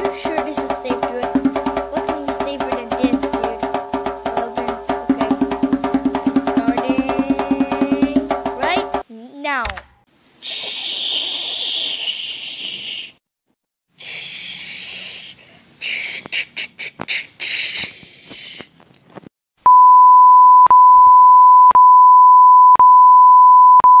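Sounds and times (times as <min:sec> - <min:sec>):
high beep tone: 0:19.7 - 0:24.0.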